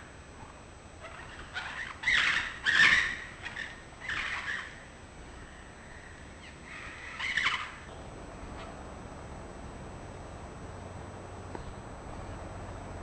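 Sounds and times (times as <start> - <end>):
parrots calling harshly: 1.0 - 4.9, 5.8 - 7.9.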